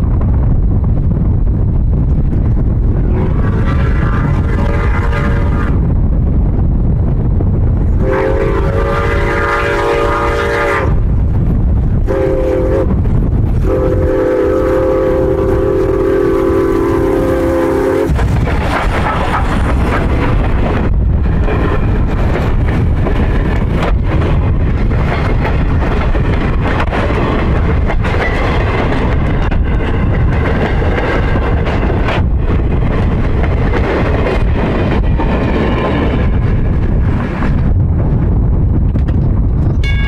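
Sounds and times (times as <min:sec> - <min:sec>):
train wheels clattering on rail: 0:01.8 - 0:40.0
steam locomotive whistle: 0:03.6 - 0:05.8, 0:08.0 - 0:11.0, 0:12.1 - 0:13.0, 0:13.6 - 0:18.2.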